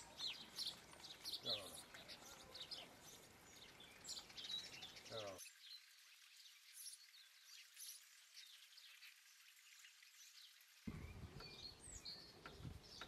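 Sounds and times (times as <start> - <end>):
low outdoor background: 0.0 - 13.0
bird chirps: 10.2 - 13.0.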